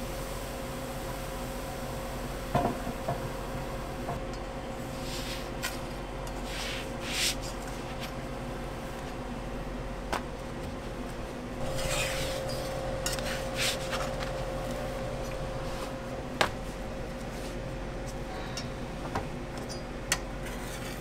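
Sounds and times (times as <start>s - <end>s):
steady hum: 0.0s - 21.0s
metal spatula scraping griddle: 11.6s - 14.0s, 20.4s - 21.0s.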